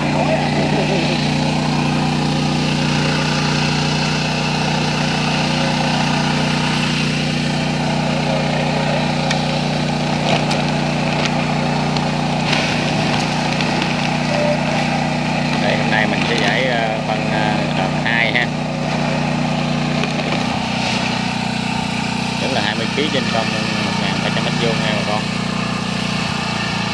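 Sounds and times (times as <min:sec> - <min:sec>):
small engine running: 0:00.0 - 0:26.9
pellets poured into plastic hopper: 0:09.0 - 0:16.9, 0:18.9 - 0:21.6.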